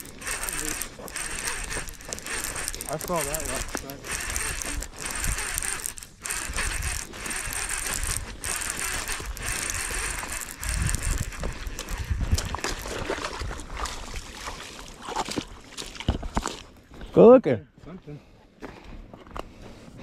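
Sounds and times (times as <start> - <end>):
fishing reel whirring: 0.0 - 13.1
low rumbles: 0.0 - 13.7.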